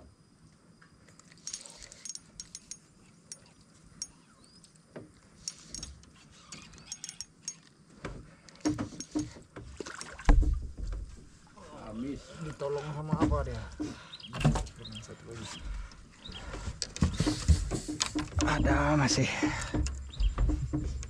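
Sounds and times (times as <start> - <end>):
fishing reel clicking: 5.4 - 7.7
knocks on wooden boat: 8.7 - 11.3, 13.1 - 14.7, 17.0 - 21.0.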